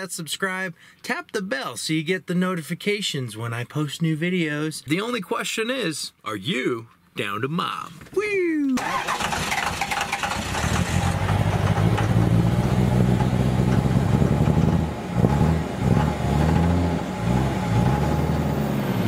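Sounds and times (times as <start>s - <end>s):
vehicle engine running: 9.1s - 19.0s.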